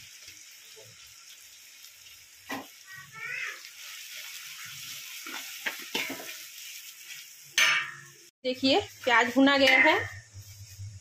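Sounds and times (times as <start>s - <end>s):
onions sizzling in oil: 0.0s - 11.0s
spoon scraping metal pan: 9.5s - 10.2s.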